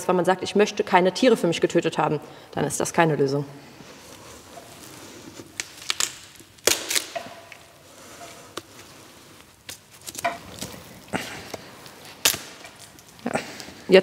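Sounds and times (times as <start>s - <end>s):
bone cracking and snapping: 5.5s - 7.7s, 9.7s - 13.2s.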